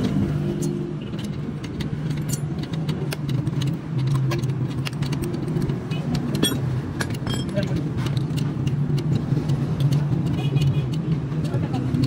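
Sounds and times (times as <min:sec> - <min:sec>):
metallic tool clinks: 0:06.4 - 0:07.7.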